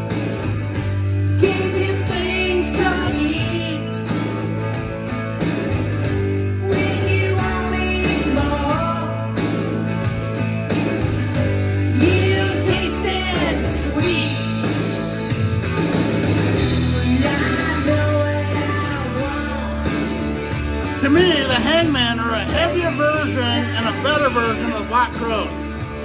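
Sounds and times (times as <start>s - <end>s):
rock song from vinyl record: 0.0s - 26.0s.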